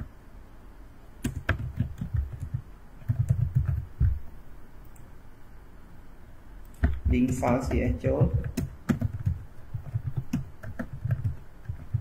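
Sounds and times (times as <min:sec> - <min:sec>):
typing on keyboard: 0:01.2 - 0:04.2, 0:06.7 - 0:12.0.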